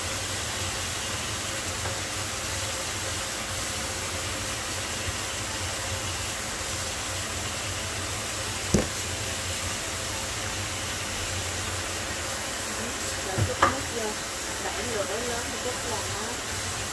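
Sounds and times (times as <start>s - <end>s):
fish sizzling in a pan: 0.0s - 16.9s
short knock: 8.7s - 9.0s.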